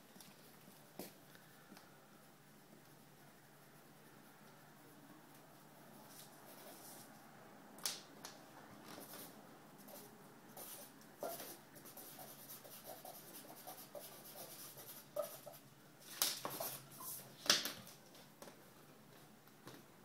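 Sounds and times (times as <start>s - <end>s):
drawing tool scratching on paper: 9.9s - 15.6s.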